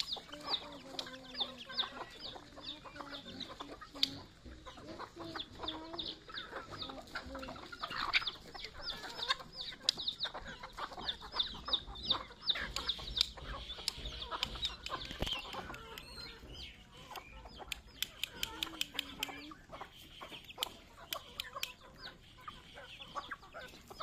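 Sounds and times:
beaks pecking on concrete: 0.0s - 24.0s
chicks peeping: 0.0s - 24.0s
hens clucking: 0.0s - 24.0s.

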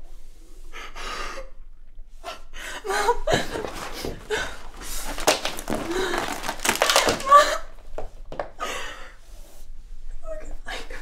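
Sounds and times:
woman sobbing: 2.8s - 7.8s.

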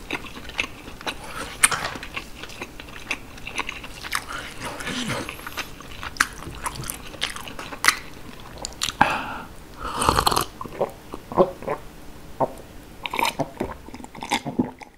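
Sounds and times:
wet chewing clicks: 0.0s - 9.0s, 12.4s - 14.9s
gulping water: 0.0s - 9.2s, 10.1s - 14.9s.

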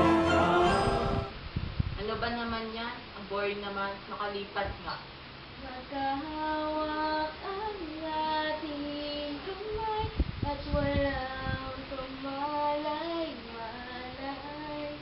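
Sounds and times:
young female voice singing: 5.6s - 15.0s.

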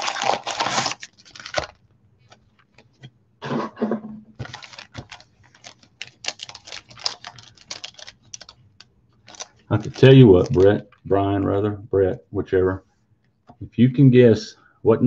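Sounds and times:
packaging crinkling and tearing: 0.0s - 3.0s, 4.4s - 11.0s.

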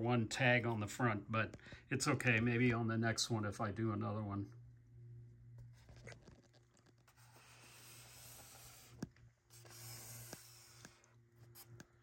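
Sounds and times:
low steady hum: 0.0s - 12.0s
rubbing and scratching from handling: 5.6s - 12.0s.

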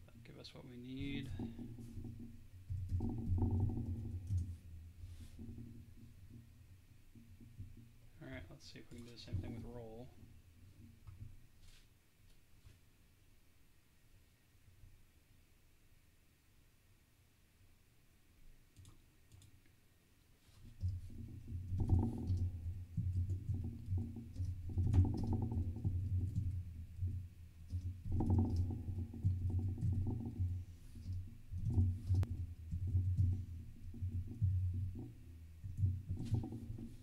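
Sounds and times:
typing on computer keyboard: 18.8s - 19.6s.

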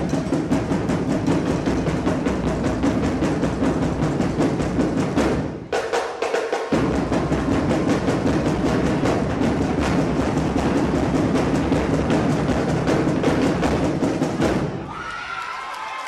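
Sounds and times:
marching drums cadence: 0.0s - 15.1s.

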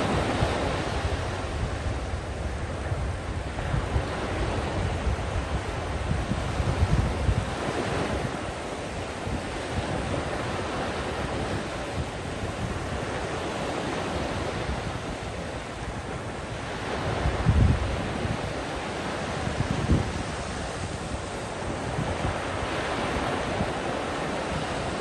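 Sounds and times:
surf breaking on sand: 0.0s - 25.0s
wind buffeting microphone: 0.0s - 25.0s.

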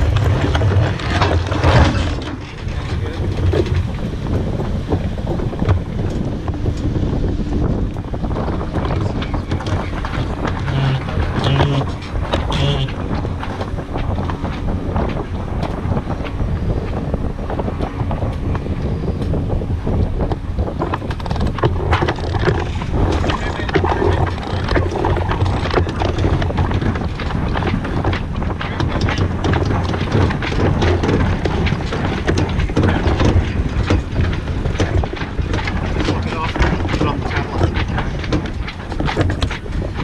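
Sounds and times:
wind rumbling on microphone: 0.0s - 40.0s
winch pawls clicking: 20.8s - 40.0s.

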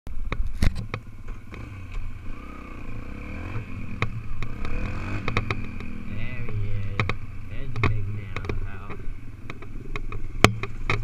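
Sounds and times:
dirt bike engine revving: 1.3s - 11.0s
sharp clicks and knocks: 3.5s - 11.0s.

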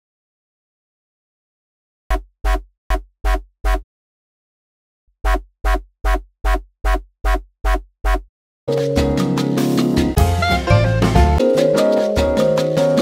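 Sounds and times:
synth bass notes: 10.0s - 13.0s.

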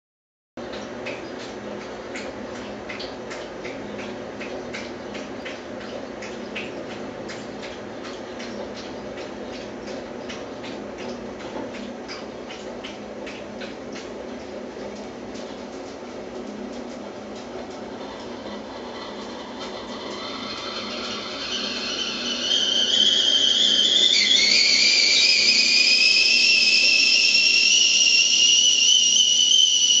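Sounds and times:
dog lapping water: 0.6s - 20.3s
teakettle whistling: 17.7s - 30.0s.

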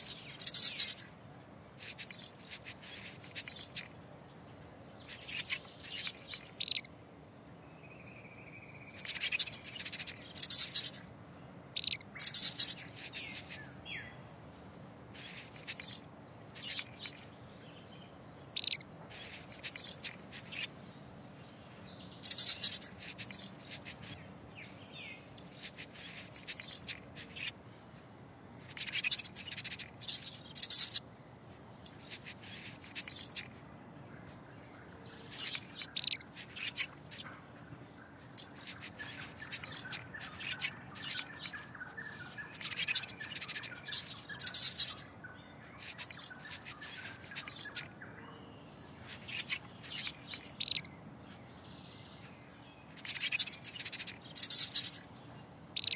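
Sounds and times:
rapid high-pitched chirping: 0.0s - 1.1s, 1.7s - 3.9s, 5.0s - 6.9s, 8.9s - 11.1s, 11.7s - 13.7s, 15.1s - 17.3s, 18.5s - 20.8s, 22.2s - 24.2s, 25.4s - 27.6s, 28.6s - 31.0s, 31.8s - 33.5s, 35.3s - 37.3s, 38.3s - 45.1s, 45.8s - 48.0s, 49.0s - 50.9s, 52.9s - 55.0s
faint steady background noise: 0.0s - 55.9s.

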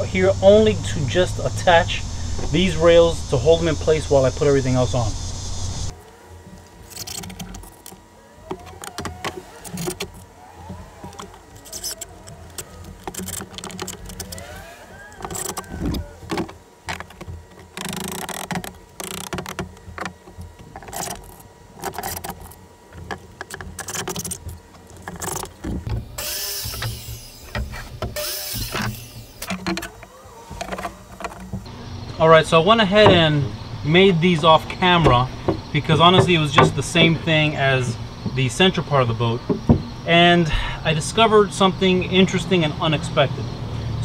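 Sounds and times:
circular saw cutting plank: 6.8s - 16.6s, 25.1s - 39.8s
mallet tapping wood: 35.0s - 37.2s.

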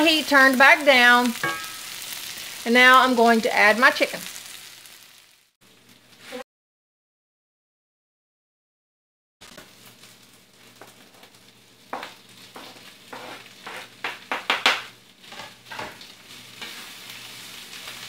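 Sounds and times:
pan sizzling: 0.0s - 6.4s, 9.4s - 18.0s
sharp scrapes and knocks: 12.0s - 14.5s
wooden spoon scraping pan: 12.0s - 14.5s, 15.2s - 17.0s.

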